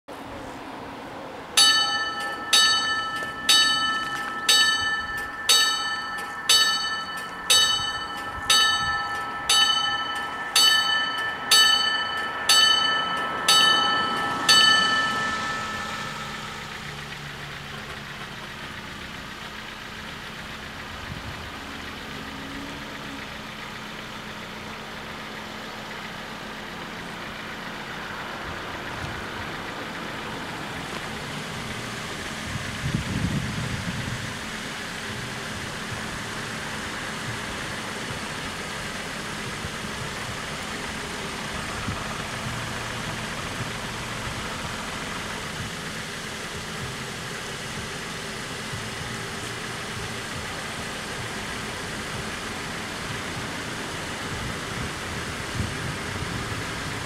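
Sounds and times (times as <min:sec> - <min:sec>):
level crossing warning bells: 0:01.6 - 0:20.6.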